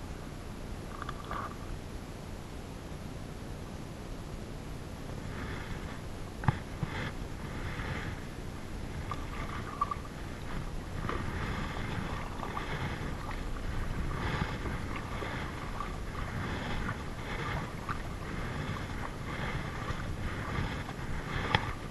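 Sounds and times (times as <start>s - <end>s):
steady low rumble: 0.0s - 21.9s
paddle splashing through water: 6.4s - 21.9s.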